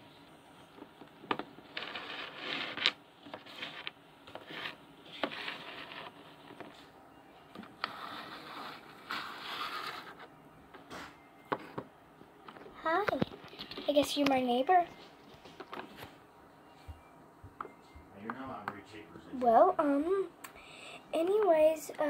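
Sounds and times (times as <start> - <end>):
figurines scraping on table: 1.3 - 6.9, 7.6 - 10.3.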